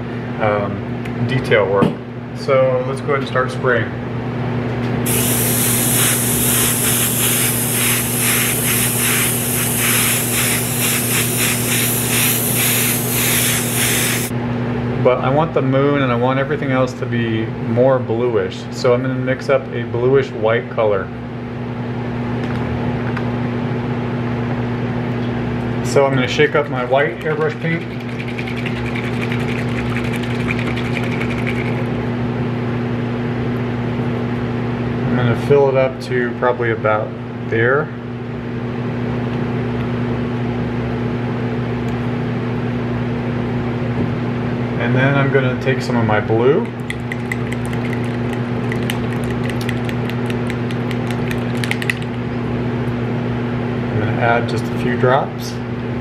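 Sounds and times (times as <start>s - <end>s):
steady low hum: 5.0s - 14.6s
airbrush spraying hiss: 5.1s - 14.3s
mixing ball rattling in paint bottle: 27.1s - 31.9s, 46.7s - 52.2s.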